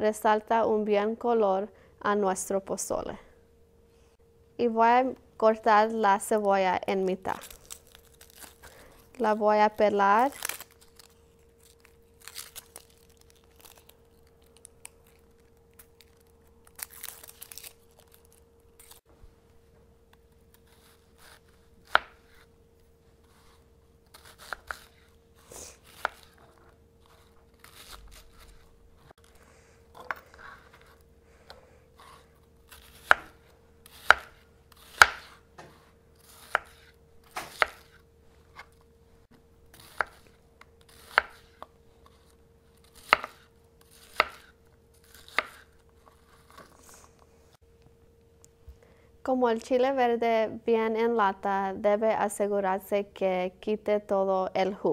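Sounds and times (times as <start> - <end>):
onion skin tearing: 7.3 - 8.9, 10.2 - 19.0, 23.3 - 26.4, 27.0 - 29.4, 32.0 - 35.4, 36.2 - 38.0, 39.7 - 41.6, 42.2 - 46.6.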